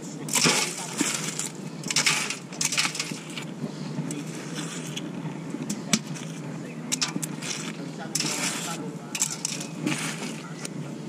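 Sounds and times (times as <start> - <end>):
metal dropped into bucket: 0.3 - 3.2, 9.2 - 10.2.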